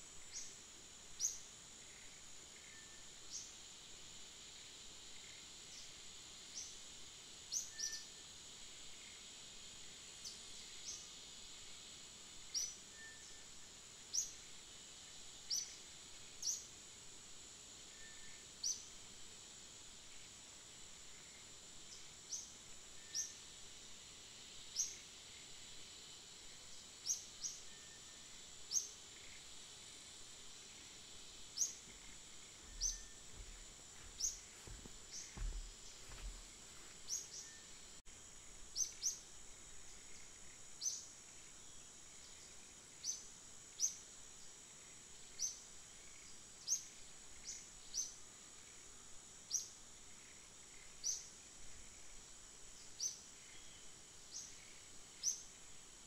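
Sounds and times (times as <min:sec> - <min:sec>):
high insect drone: 0:00.0 - 0:56.0
bird chirping: 0:31.6 - 0:36.4
faint low thumps: 0:31.8 - 0:36.6.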